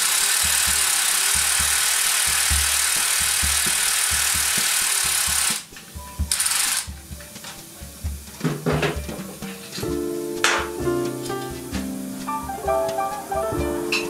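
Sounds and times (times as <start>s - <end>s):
cordless ratchet running: 0.0s - 5.7s, 6.3s - 6.9s
background music with steady beat: 0.0s - 14.0s.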